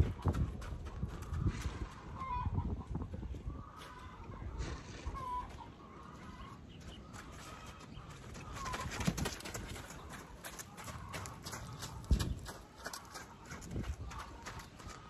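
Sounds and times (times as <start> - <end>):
horse hooves thudding on dirt: 0.0 - 2.3, 6.5 - 15.0.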